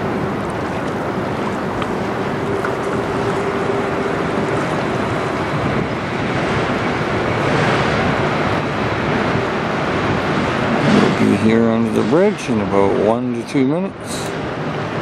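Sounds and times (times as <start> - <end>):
faint steady hum: 0.0 - 7.3
wind noise on microphone: 0.0 - 15.0.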